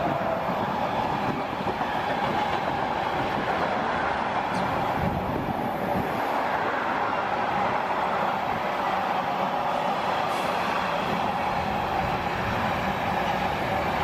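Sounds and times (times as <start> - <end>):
freight train wagons rolling past: 0.0 - 14.0.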